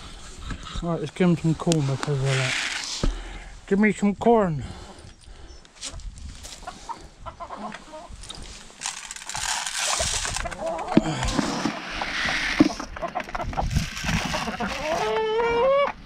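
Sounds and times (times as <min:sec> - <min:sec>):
chickens clucking: 0:05.9 - 0:08.4, 0:09.9 - 0:16.0
loud rustling: 0:08.3 - 0:12.9.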